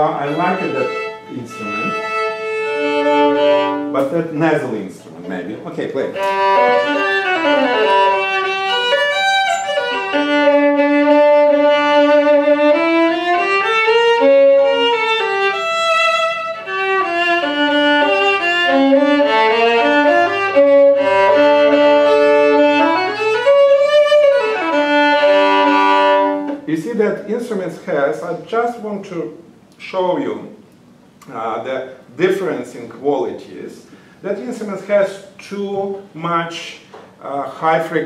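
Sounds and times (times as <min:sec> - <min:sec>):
solo violin melody: 0:00.0 - 0:04.1, 0:05.2 - 0:26.7.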